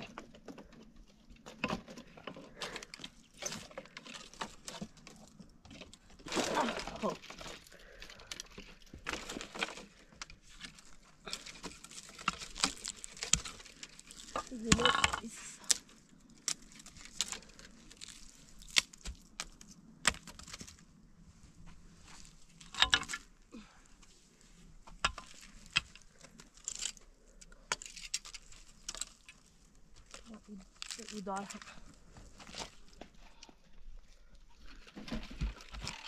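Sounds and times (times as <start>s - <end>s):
dry branches snapping: 6.2s - 20.9s, 25.0s - 31.7s.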